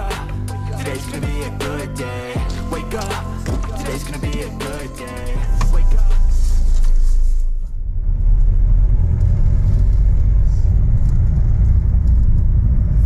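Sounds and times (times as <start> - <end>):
car engine and road noise: 5.2 - 13.0.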